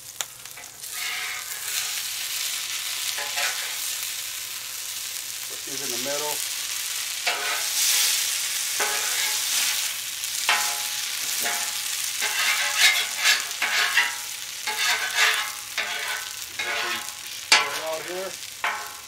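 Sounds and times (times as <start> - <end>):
hash browns sizzling on griddle: 0.0 - 19.0
metal spatula scraping steel: 0.6 - 2.5, 3.1 - 3.9, 7.2 - 8.2, 8.8 - 9.9, 10.5 - 19.0.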